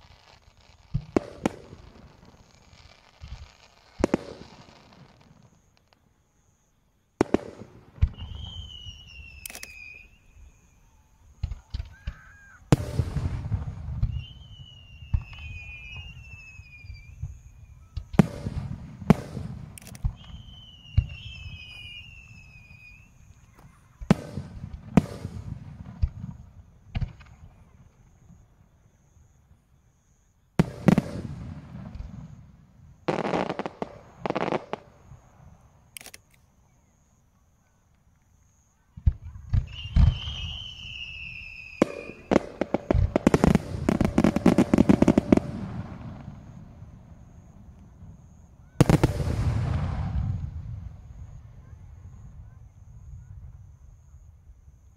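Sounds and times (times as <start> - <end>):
firework crackle: 0.0 - 6.0, 30.6 - 35.9, 39.0 - 51.7
high falling whistles: 8.0 - 13.2, 13.8 - 18.1, 20.0 - 23.5, 39.6 - 46.7
firework shells booming: 39.0 - 51.1.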